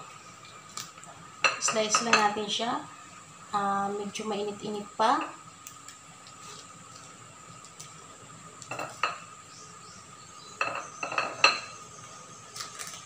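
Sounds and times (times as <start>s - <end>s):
aluminium foil crinkling: 5.7s - 8.0s, 12.5s - 13.0s.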